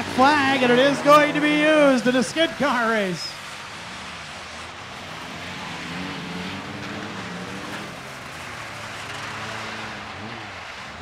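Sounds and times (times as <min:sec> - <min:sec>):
car engines revving: 0:00.0 - 0:11.0
metal skid plates grinding pavement: 0:06.3 - 0:10.5.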